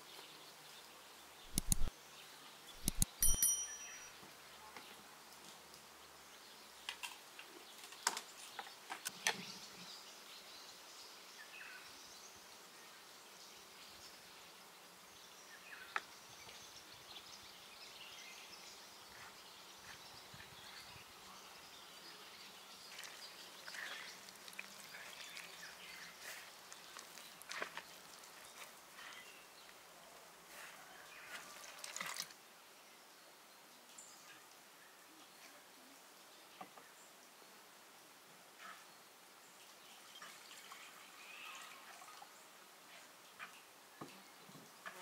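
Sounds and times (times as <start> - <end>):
small birds chirping: 0.0 - 31.6
sharp clicks or knocks: 1.5 - 1.9, 2.8 - 3.6.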